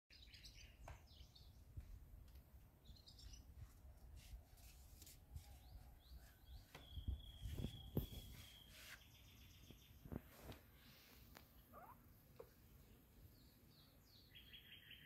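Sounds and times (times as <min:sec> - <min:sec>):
high bird chirps: 0:05.7 - 0:10.1, 0:13.8 - 0:15.0.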